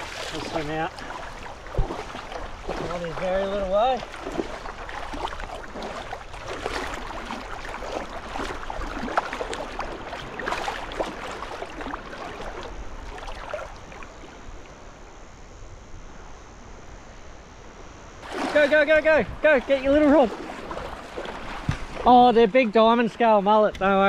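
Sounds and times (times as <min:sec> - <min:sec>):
seawater splashing around wading person: 0:00.0 - 0:14.7, 0:18.2 - 0:23.4
surf wash: 0:00.0 - 0:15.3, 0:18.2 - 0:24.0.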